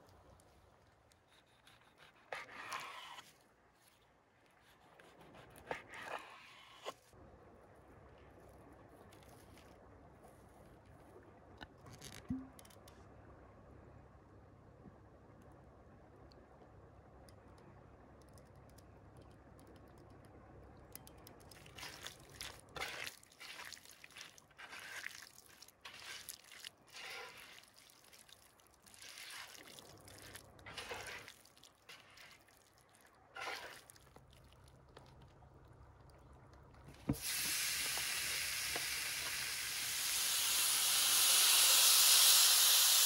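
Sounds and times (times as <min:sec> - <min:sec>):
hands squishing raw chicken: 0:21.2 - 0:37.0.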